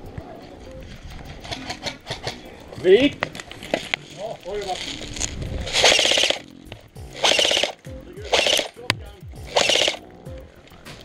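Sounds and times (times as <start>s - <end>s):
toy machine gun firing bursts: 5.7s - 6.4s, 7.1s - 10.0s.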